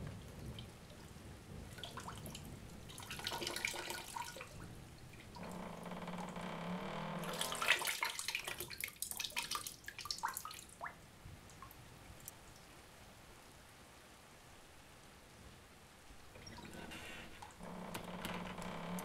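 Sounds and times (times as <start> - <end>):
water dripping: 0.0 - 12.8, 16.2 - 19.0
water splashing at sink: 1.7 - 10.9, 16.3 - 19.0.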